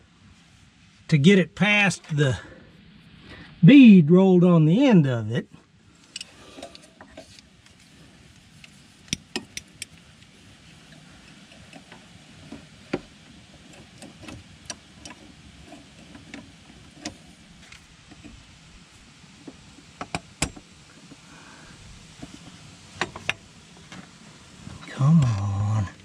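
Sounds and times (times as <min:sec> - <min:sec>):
metallic clicks of hand tools: 0:06.0 - 0:06.9.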